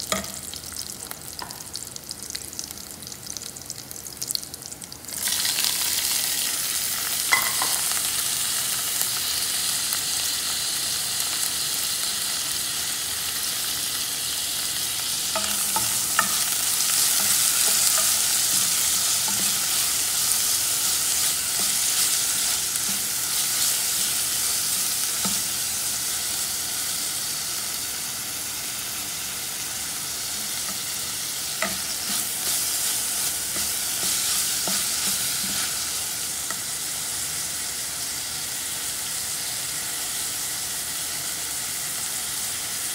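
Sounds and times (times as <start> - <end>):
vegetables sizzling in hot oil: 0.0 - 42.9
spoon knocking against pan: 7.3 - 7.8.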